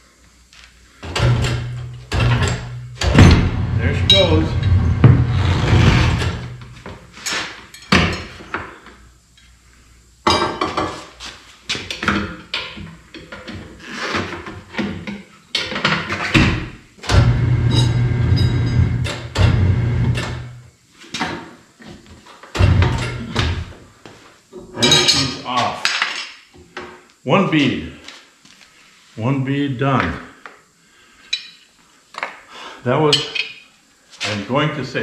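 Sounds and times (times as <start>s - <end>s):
low steady hum: 0.1s - 10.6s, 16.4s - 20.8s, 22.6s - 25.8s
tire irons clanking on rim: 17.2s - 20.5s.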